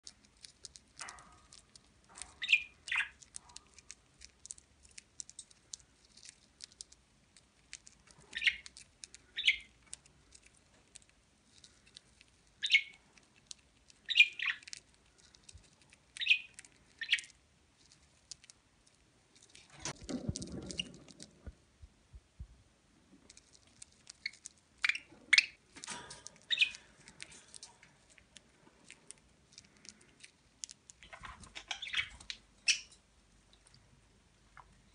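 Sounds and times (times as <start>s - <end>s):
bird pecking seeds: 0.0s - 21.6s, 23.1s - 33.9s
budgerigar chirps: 31.0s - 32.9s.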